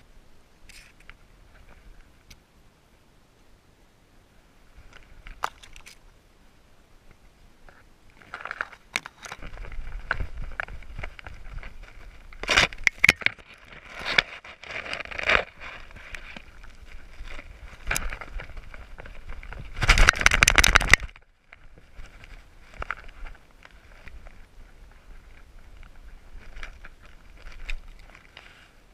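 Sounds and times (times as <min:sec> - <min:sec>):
brush scraping and crackling: 0:07.6 - 0:28.9
branches snapping: 0:08.2 - 0:23.4.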